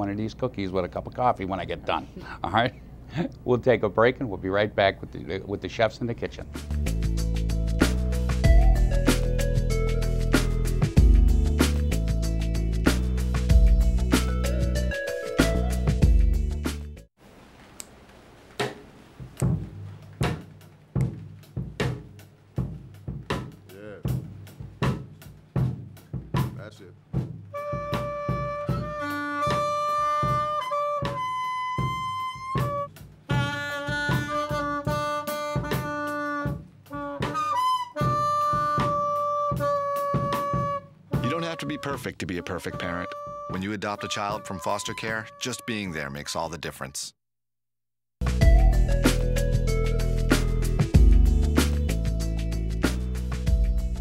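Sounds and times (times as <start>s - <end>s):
saxophone playing: 27.5s - 46.0s
drum kit hits: 50.3s - 54.0s.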